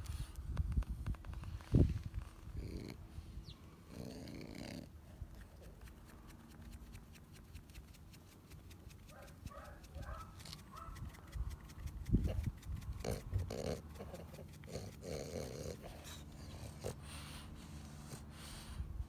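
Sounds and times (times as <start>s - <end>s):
dog snorting breaths: 9.0s - 19.0s.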